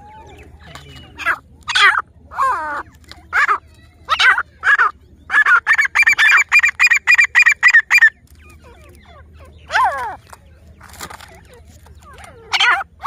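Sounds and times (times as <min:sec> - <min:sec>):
bird calling in fast notes: 0:00.0 - 0:10.4.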